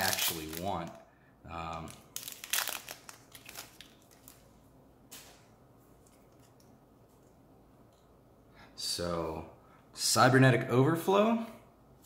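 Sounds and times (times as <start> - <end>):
foil pack crinkling: 0.0 - 1.0, 1.7 - 4.5.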